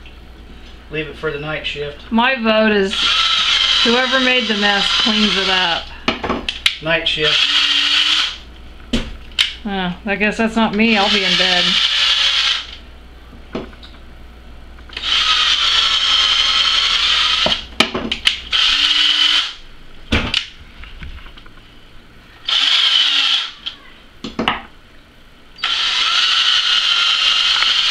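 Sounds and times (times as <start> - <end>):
cordless drill whirring: 2.9 - 5.8, 7.2 - 8.4, 11.0 - 12.8, 14.9 - 17.6, 18.5 - 19.6, 22.4 - 23.6, 25.6 - 27.9.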